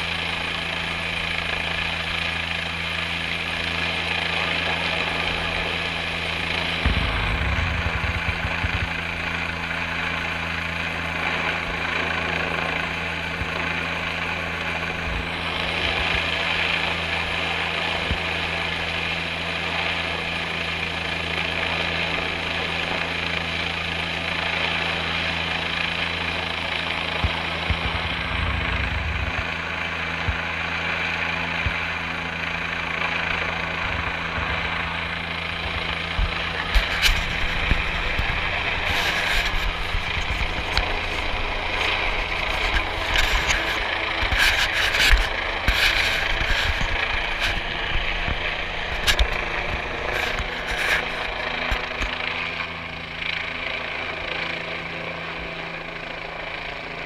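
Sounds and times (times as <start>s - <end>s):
helicopter hovering: 0.0s - 57.0s
rotor downwash gusts on microphone: 6.8s - 9.2s, 27.6s - 30.4s.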